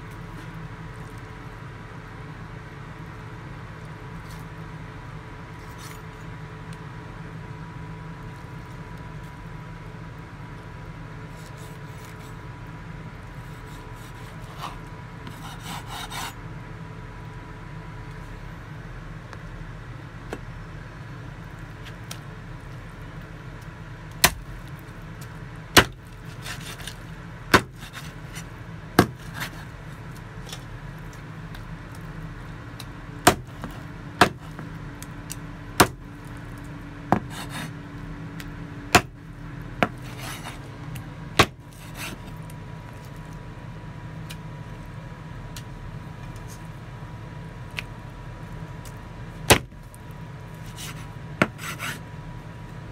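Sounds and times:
steady low hum: 0.0 - 52.9
cleaver chopping on wooden board: 25.8 - 28.1, 29.0 - 29.6, 33.2 - 34.6, 35.8 - 36.0, 37.1 - 37.7, 38.9 - 39.2, 39.8 - 40.6, 41.4 - 42.2, 49.5 - 49.8, 50.8 - 52.0.

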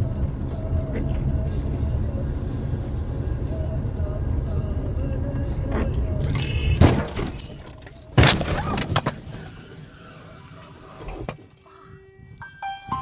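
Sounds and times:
car collision crashes: 6.6 - 9.5.

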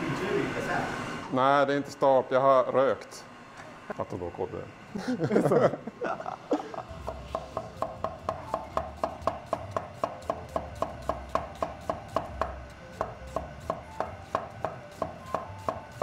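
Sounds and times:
knife chopping on wooden board: 7.0 - 16.0.

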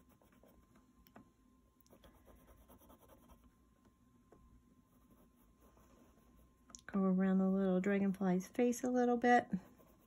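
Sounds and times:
colored pencil scratching paper: 0.0 - 0.8, 1.9 - 3.5, 4.8 - 6.6, 9.6 - 10.0.

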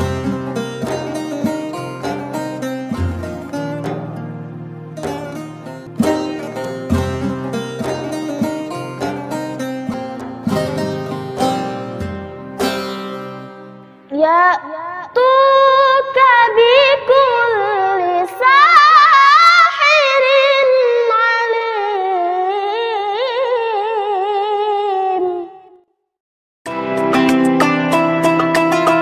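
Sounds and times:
high voice singing unaccompanied: 14.1 - 25.8.

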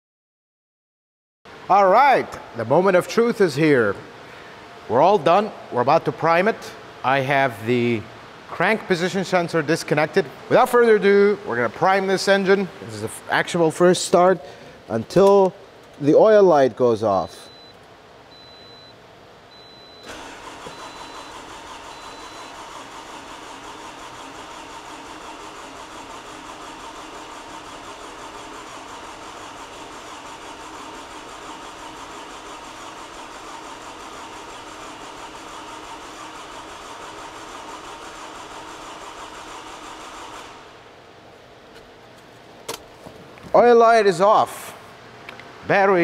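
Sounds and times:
starter motor cranking engine: 19.9 - 40.7.

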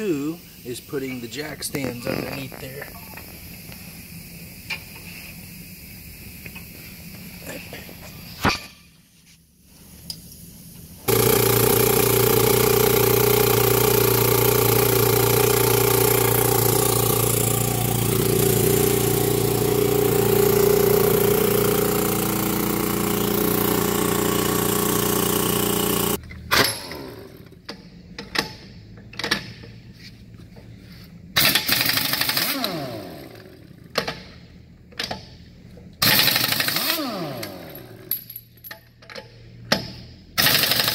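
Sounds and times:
air motor running: 10.9 - 27.6
air impact wrench bursts: 11.0 - 27.5, 31.4 - 33.6, 36.0 - 38.1, 40.4 - 40.9.

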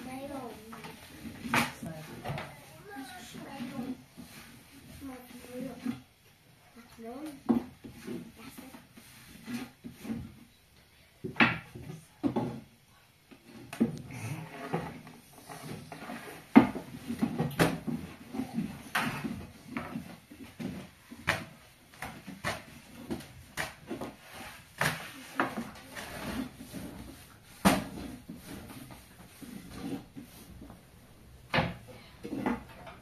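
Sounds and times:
soft rustling: 0.0 - 6.1
objects knocking and clattering: 11.2 - 12.7, 13.4 - 30.8, 31.4 - 33.0.

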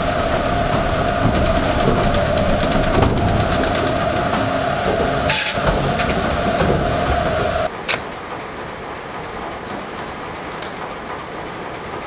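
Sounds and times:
machinery whine: 0.0 - 8.6
conveyor rattling and clattering: 0.0 - 12.0.

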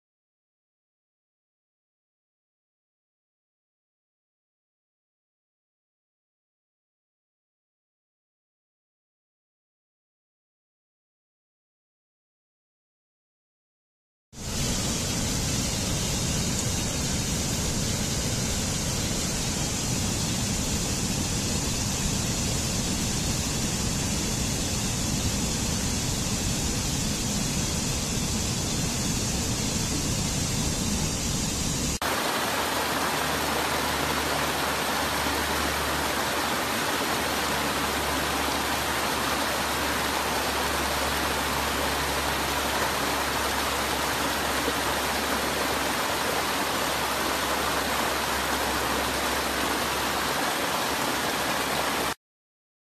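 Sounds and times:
stream water rushing over rocks: 32.0 - 52.2.

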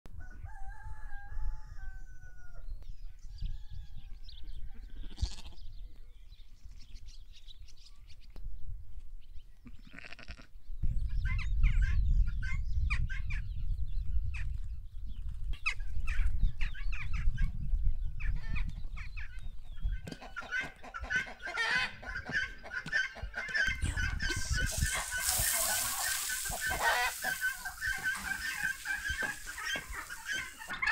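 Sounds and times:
lambs bleating: 4.9 - 5.6, 9.7 - 10.5
hens clucking: 19.3 - 30.9.

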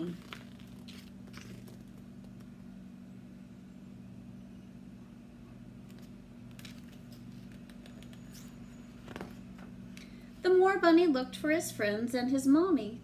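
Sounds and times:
book handling clicks and rustles: 0.0 - 2.5, 5.8 - 9.7
low background hum: 0.0 - 13.0.

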